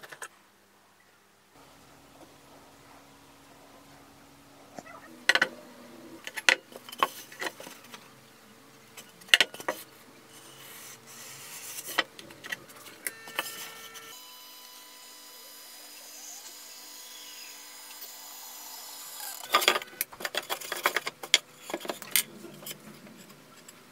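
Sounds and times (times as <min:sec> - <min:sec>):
marker scratching on foam: 0:10.3 - 0:12.0
objects clicking and knocking on bench: 0:19.5 - 0:23.8.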